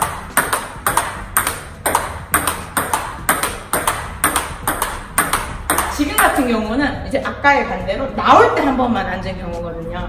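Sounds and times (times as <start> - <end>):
ping pong ball bouncing on table: 0.0 - 6.5
ping pong ball hitting racket: 0.0 - 6.6.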